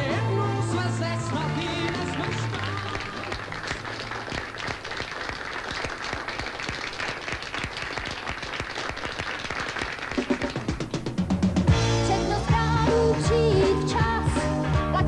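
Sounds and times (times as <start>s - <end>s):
audience applause: 1.0s - 11.2s.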